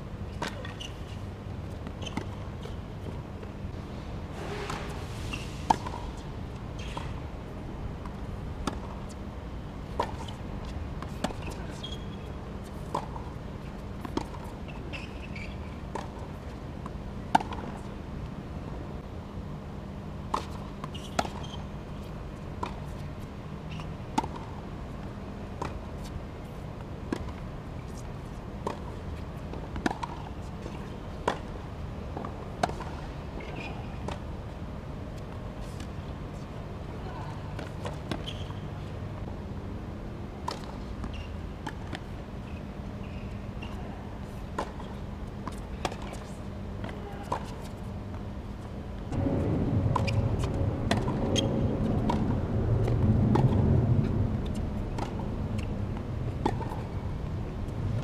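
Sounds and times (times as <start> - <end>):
outdoor background hum: 0.0 - 58.0
tennis ball bouncing: 5.7 - 6.2, 8.0 - 9.2, 12.7 - 13.4, 14.0 - 14.6, 17.2 - 17.8, 29.6 - 31.6, 32.2 - 34.2, 43.1 - 47.8, 49.1 - 53.7, 54.4 - 55.7, 56.3 - 57.1.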